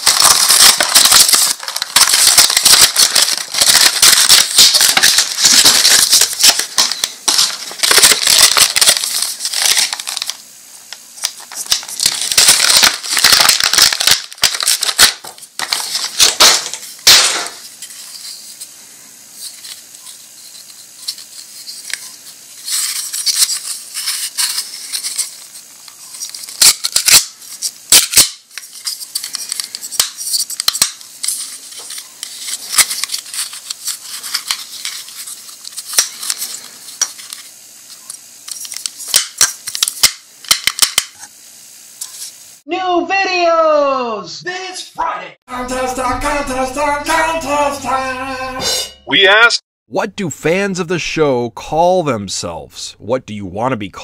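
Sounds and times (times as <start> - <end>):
cellophane wrapper crinkling: 0.0 - 18.4, 19.4 - 41.2.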